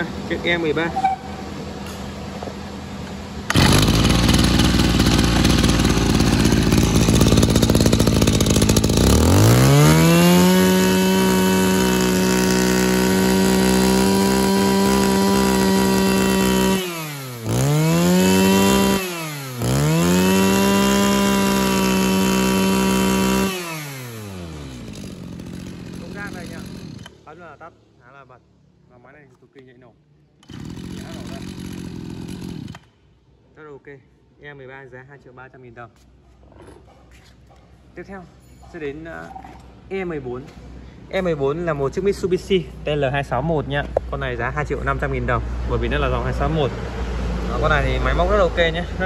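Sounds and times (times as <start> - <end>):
brush cutter engine running: 3.4 - 27.2, 30.4 - 32.9.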